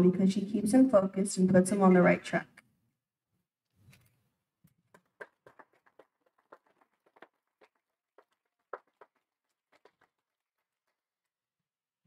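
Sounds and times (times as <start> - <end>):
faint scattered clapping: 4.8 - 11.0.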